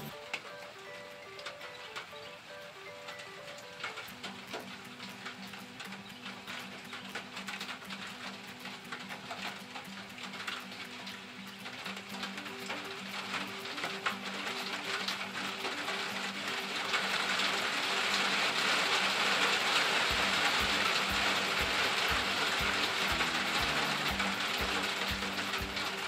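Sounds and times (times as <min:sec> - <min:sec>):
low repeating melody: 0:00.0 - 0:26.0
steady rain falling: 0:00.0 - 0:26.0
low beat: 0:20.1 - 0:26.0.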